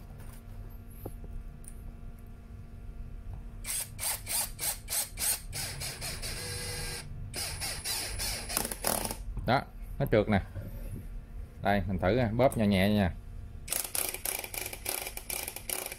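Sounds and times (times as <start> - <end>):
cordless screwdriver driving screw: 3.6 - 9.2, 13.7 - 15.9.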